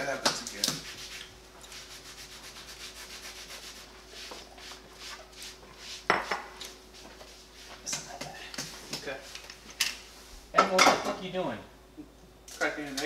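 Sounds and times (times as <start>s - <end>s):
soft rubbing and scraping strokes: 0.8s - 6.1s, 6.9s - 7.8s.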